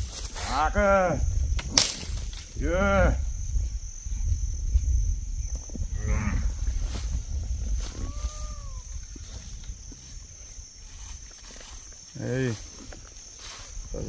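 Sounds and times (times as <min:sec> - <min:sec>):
steady low rumble: 0:01.2 - 0:11.8.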